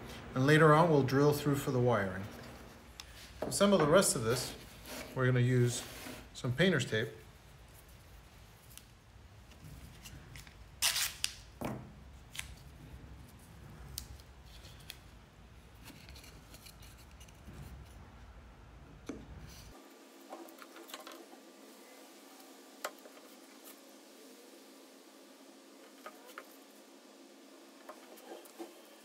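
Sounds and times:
tape ripping from roll: 0:10.1 - 0:11.6.

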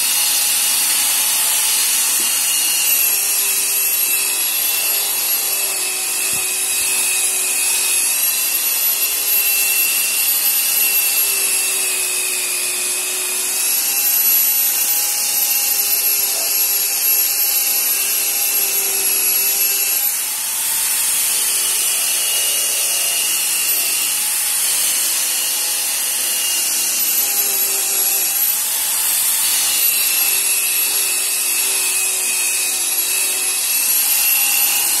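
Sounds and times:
car polisher motor whine: 0:00.0 - 0:09.2, 0:12.4 - 0:17.0.

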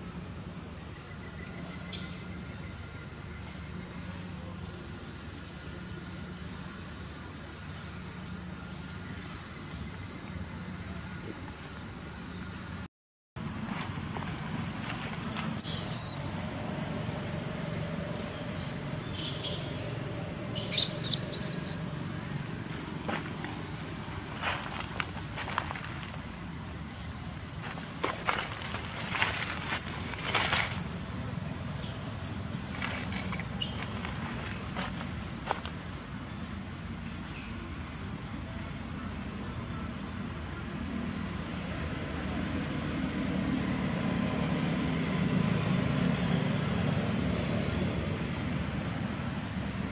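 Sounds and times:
high-pitched insect drone: 0:00.0 - 0:49.9
baby monkey screaming: 0:15.6 - 0:16.3, 0:20.6 - 0:21.9.

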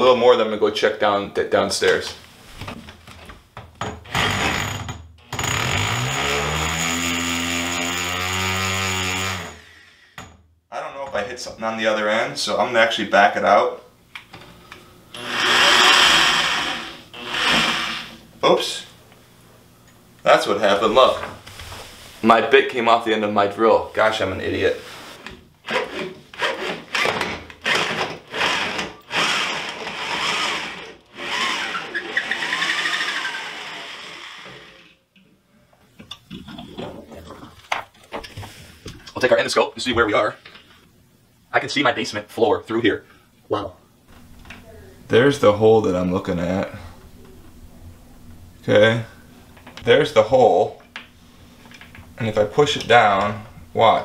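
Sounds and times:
electric drill motor whine: 0:04.1 - 0:09.6, 0:15.1 - 0:18.2, 0:25.8 - 0:35.0.

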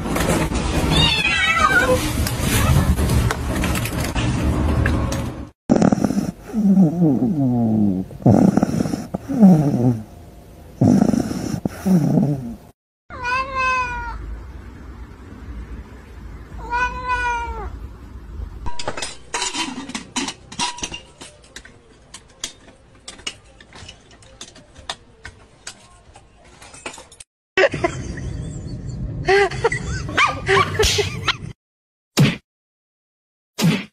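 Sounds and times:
cat meowing: 0:13.1 - 0:14.2, 0:16.6 - 0:17.7.

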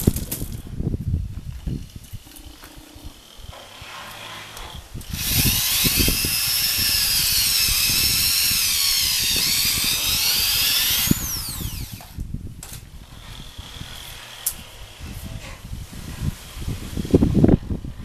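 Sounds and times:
electric drill boring into rubber: 0:03.2 - 0:12.2, 0:13.1 - 0:15.1.

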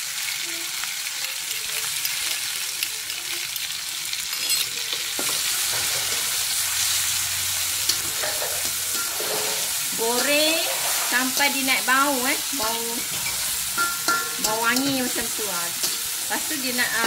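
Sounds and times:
paste sizzling in hot oil: 0:00.0 - 0:17.0
metal spatula scraping wok: 0:04.2 - 0:17.0.

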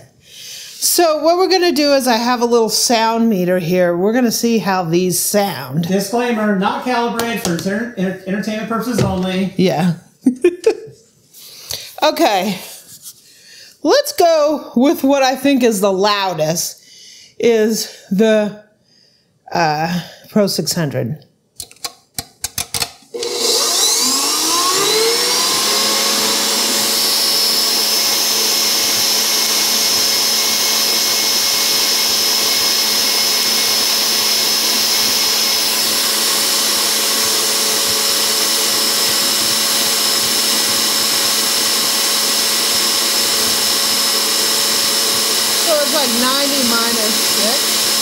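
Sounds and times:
stand mixer motor whining: 0:23.1 - 0:48.0.

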